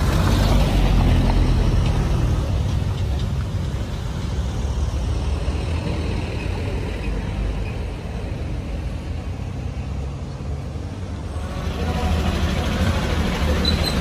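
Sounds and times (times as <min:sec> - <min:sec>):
motorcycle engines: 0:00.0 - 0:14.0
truck engine driving past: 0:09.3 - 0:14.0.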